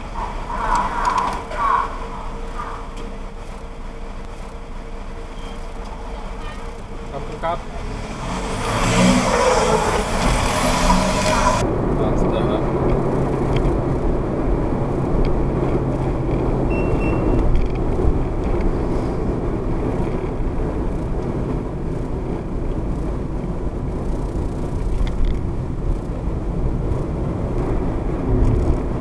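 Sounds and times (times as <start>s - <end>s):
car road and engine noise: 0.0s - 29.0s.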